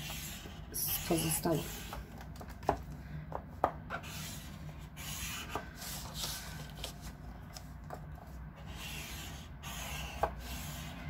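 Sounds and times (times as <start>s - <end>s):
scoring tool scraping cardstock: 0.0s - 2.4s, 3.9s - 7.1s, 8.6s - 11.0s.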